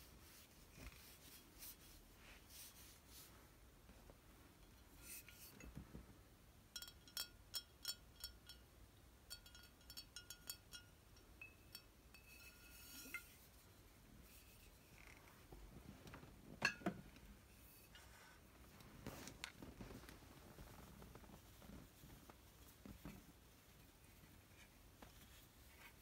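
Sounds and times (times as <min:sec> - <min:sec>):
glass bottle clinking: 0:09.3 - 0:13.4, 0:16.6 - 0:17.0.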